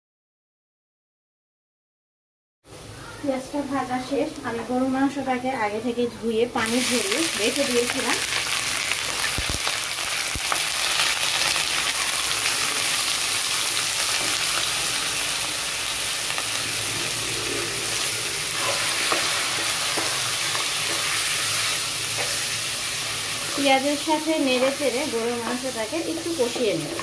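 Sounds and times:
meat sizzling in hot oil: 6.6s - 27.0s.

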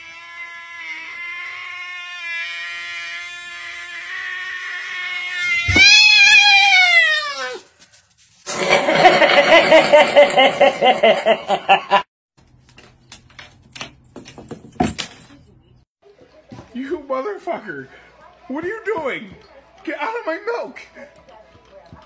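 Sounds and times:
cat yowling: 4.1s - 7.7s.

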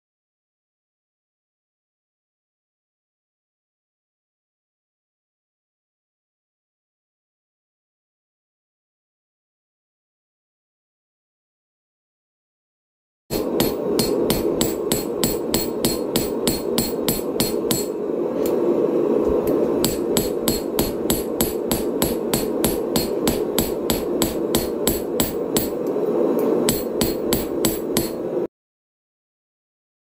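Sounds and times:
hammer striking hot steel: 13.3s - 18.6s, 19.5s - 28.4s
steady low noise: 13.3s - 28.5s.

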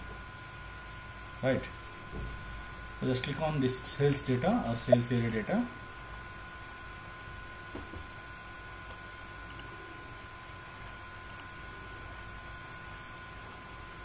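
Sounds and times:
thin whine: 0.0s - 14.0s
faint computer mouse clicks: 8.9s - 9.7s, 11.3s - 11.5s.

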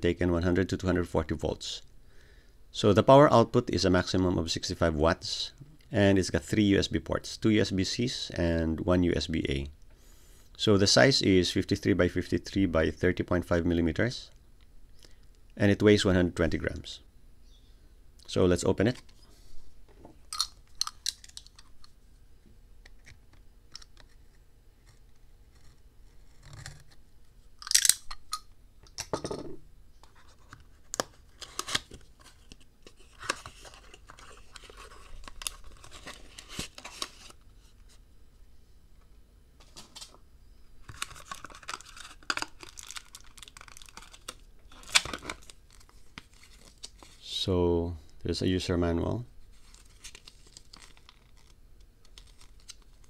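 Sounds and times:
cardboard tearing and rustling: 41.0s - 47.1s, 49.6s - 51.5s.

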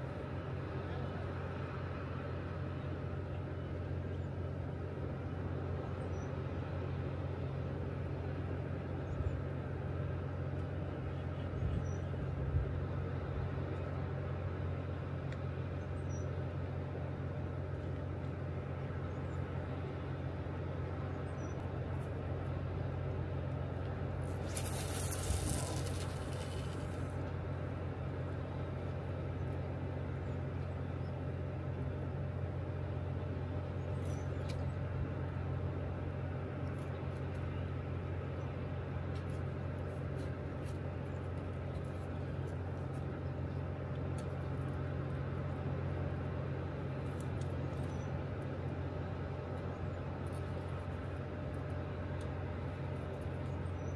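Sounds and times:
brief hiss: 24.2s - 27.1s.

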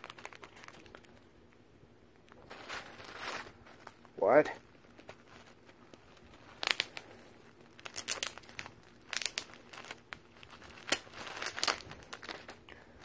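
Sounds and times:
bubble wrap crinkling: 0.0s - 13.0s
tape peeling: 4.7s - 13.0s.

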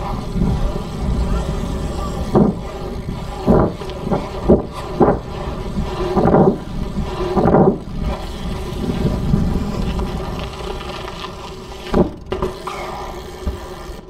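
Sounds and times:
wind buffeting microphone: 0.0s - 11.2s.

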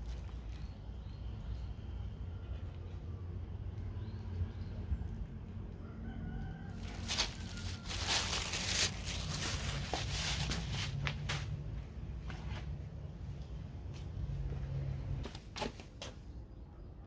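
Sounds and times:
rooster crowing: 5.7s - 8.5s.

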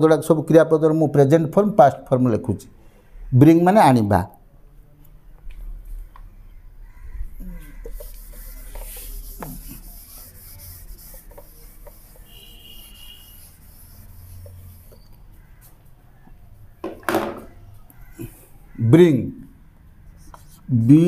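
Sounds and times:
handwriting scratching on surface: 7.6s - 15.2s, 20.1s - 21.0s.

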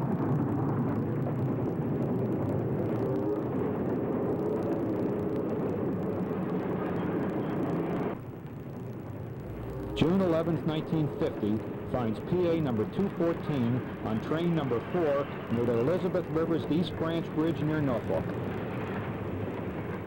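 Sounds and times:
steam locomotive running rumble: 9.3s - 20.0s.

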